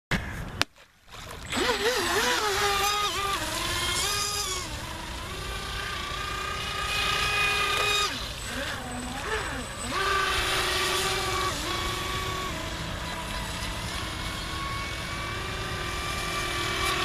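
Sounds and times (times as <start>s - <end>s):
electric motor whining: 1.2s - 17.0s.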